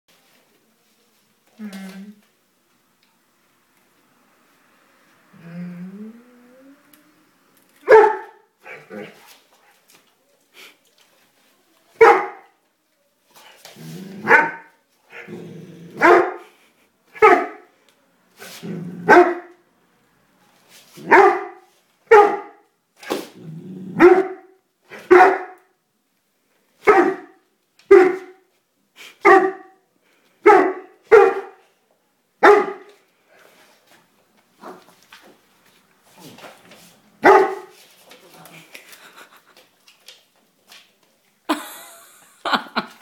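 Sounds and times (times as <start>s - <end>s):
dog barking: 7.8s - 8.9s, 12.0s - 12.5s, 14.2s - 14.7s, 16.0s - 16.5s, 17.2s - 17.7s, 19.0s - 19.6s, 21.0s - 22.6s, 24.0s - 25.7s, 26.8s - 28.4s, 29.2s - 29.8s, 30.4s - 31.6s, 32.4s - 33.0s, 37.2s - 37.8s
dog growling: 15.1s - 16.0s, 23.4s - 24.0s.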